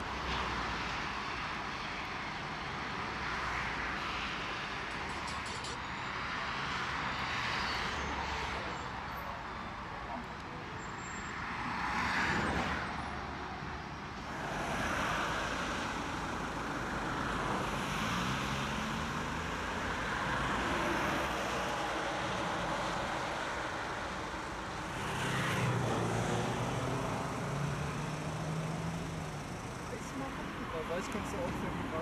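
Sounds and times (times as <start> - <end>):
road traffic rushing: 0.0 - 32.0.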